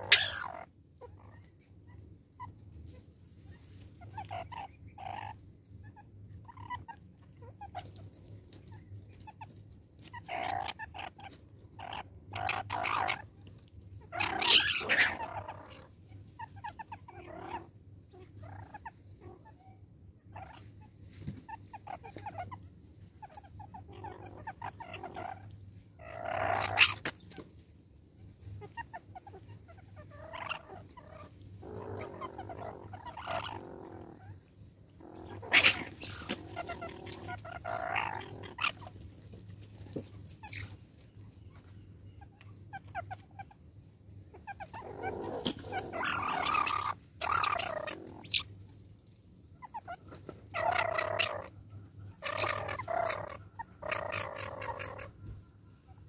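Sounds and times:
mongooses chattering calls: 0.0 - 1.5, 4.0 - 8.0, 8.7 - 13.3, 14.0 - 20.8, 21.5 - 27.4, 28.6 - 34.4, 35.0 - 39.0, 40.3 - 40.8, 42.2 - 43.6, 44.3 - 48.5, 49.6 - 55.2
mongooses squabbling: 0.0 - 27.5, 28.2 - 40.8, 41.4 - 48.6, 49.6 - 55.4.

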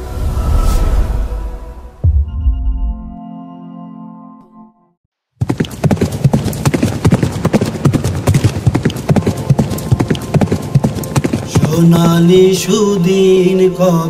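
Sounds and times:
ambient music: 0.0 - 5.0, 7.7 - 14.0
horses galloping: 5.4 - 12.6.

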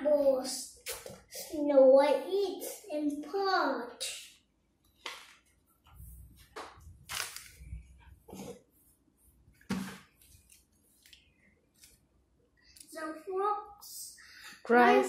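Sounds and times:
book pages turning: 6.4 - 8.6, 9.6 - 12.1.

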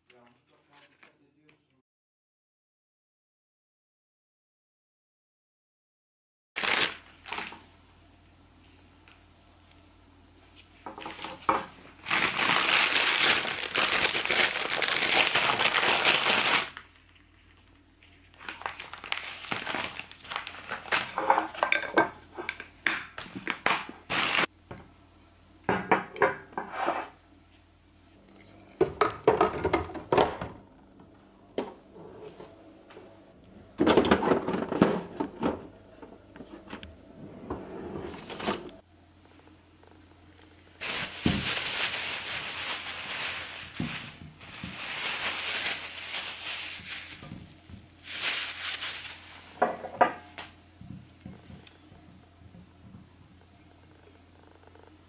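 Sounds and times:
plastic wrapping crinkling: 6.6 - 7.7, 11.0 - 21.6, 23.4 - 24.5, 40.8 - 49.6.

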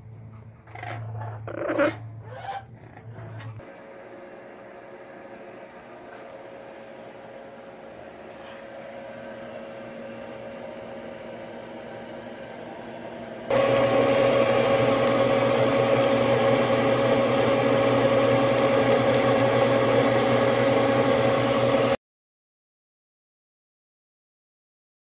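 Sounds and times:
fan motor humming: 0.0 - 22.0
loud machine hum: 3.1 - 22.0.

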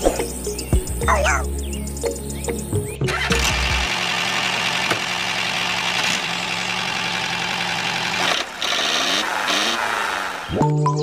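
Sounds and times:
model tractor engine drone: 3.1 - 10.6.

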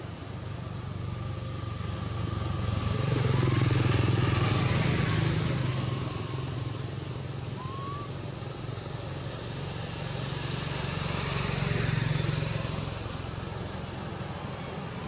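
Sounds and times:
short high rising squeak: 7.6 - 8.2.

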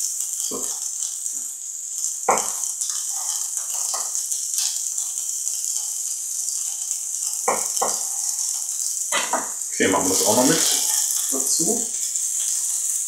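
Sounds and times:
vegetables sizzling in frying pan: 0.0 - 13.0
knife knocking on cutting board: 9.2 - 9.5.

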